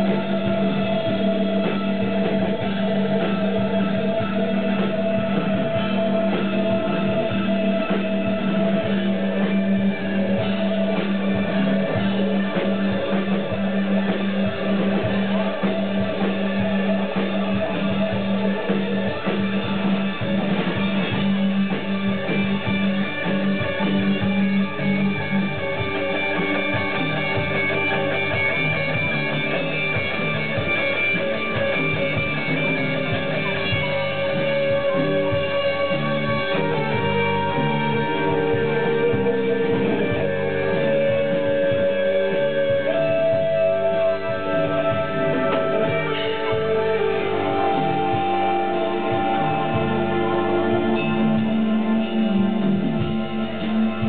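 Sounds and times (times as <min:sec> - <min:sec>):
bass guitar: 0:00.0 - 0:54.0
drum kit: 0:00.0 - 0:54.0
electric guitars: 0:00.0 - 0:54.0.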